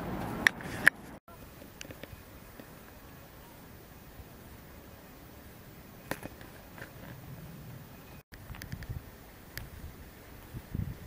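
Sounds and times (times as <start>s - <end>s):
wind rumbling on microphone: 4.5s - 11.0s.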